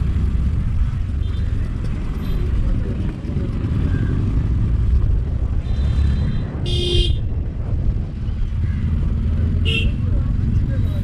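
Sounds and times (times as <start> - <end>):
motorcycle engine rumble: 0.0 - 11.0
wind buffeting microphone: 1.7 - 9.4.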